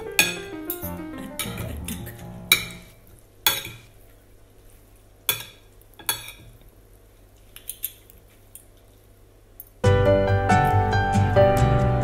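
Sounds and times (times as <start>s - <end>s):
cutlery clinking on plate: 0.1s - 2.8s, 5.3s - 6.6s.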